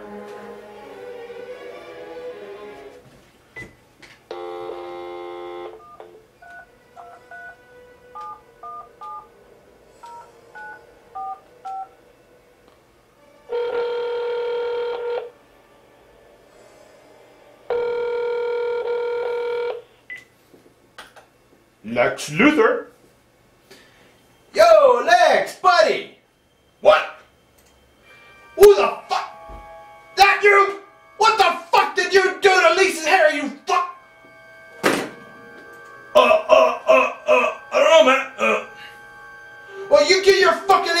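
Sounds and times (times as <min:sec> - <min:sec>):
telephone dial tone: 0:04.3 - 0:07.6, 0:08.2 - 0:09.2, 0:13.5 - 0:15.3, 0:17.7 - 0:19.8
ringback tone: 0:26.4 - 0:41.0.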